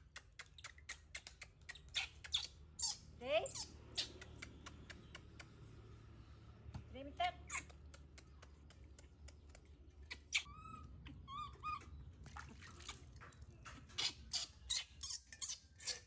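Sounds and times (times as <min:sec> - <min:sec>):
baby monkey squeaky calls: 0:01.7 - 0:04.3, 0:07.5 - 0:07.8, 0:10.0 - 0:12.0, 0:14.0 - 0:16.0
water splashing: 0:12.2 - 0:14.3.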